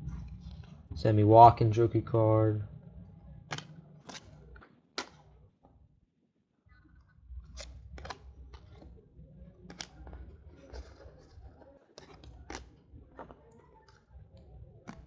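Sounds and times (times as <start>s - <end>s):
cards sliding together: 3.5s - 4.4s, 7.5s - 8.9s, 9.6s - 11.4s
cards snapping and clicking: 3.5s - 5.3s, 7.5s - 8.9s, 9.6s - 14.0s, 14.8s - 15.0s.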